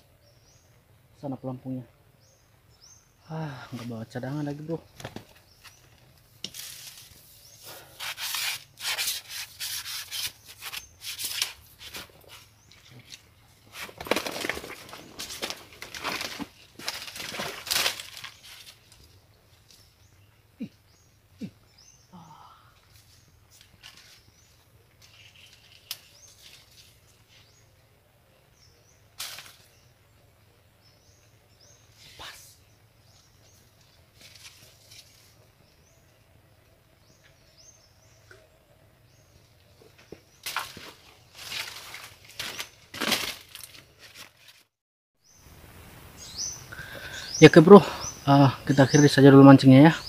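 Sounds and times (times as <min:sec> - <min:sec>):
dry palm fronds rustling: 0:03.5 - 0:20.2, 0:22.8 - 0:27.6, 0:29.2 - 0:29.9, 0:33.0 - 0:35.8, 0:39.8 - 0:44.8
faint bird chirps: 0:18.4 - 0:40.3.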